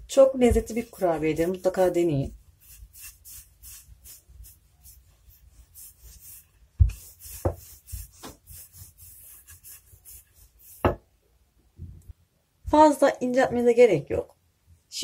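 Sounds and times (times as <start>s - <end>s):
rolling pin rubbing over dough: 0.1s - 11.0s.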